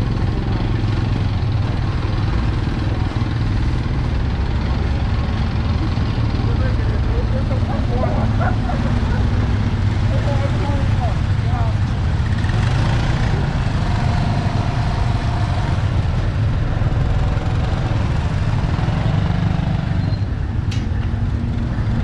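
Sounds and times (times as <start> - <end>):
distant voices: 0.0 - 12.4
motorbike engines rumbling: 0.0 - 22.0.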